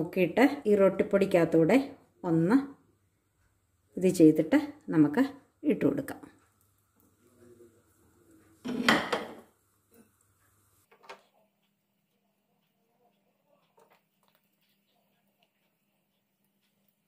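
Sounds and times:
pan clattering: 0:08.6 - 0:09.5.

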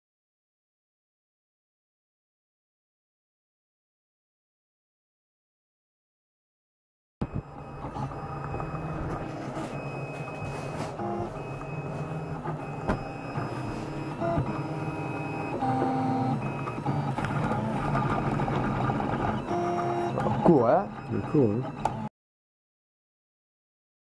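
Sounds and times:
stepper motors whining: 0:07.2 - 0:22.1.

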